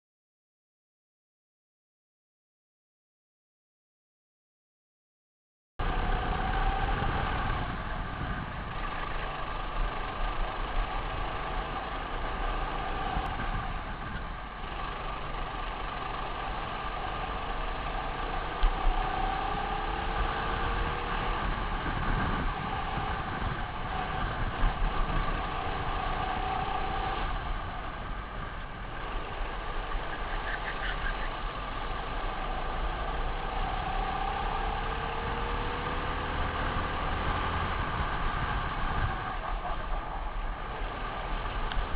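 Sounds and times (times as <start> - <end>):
kart engine accelerating: 5.8 - 41.9
rumble of wind and track: 5.8 - 41.9.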